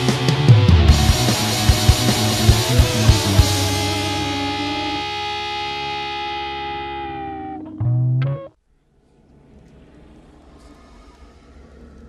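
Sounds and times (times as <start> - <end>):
rock drums: 0.0 - 8.5
electric guitar: 0.0 - 8.6.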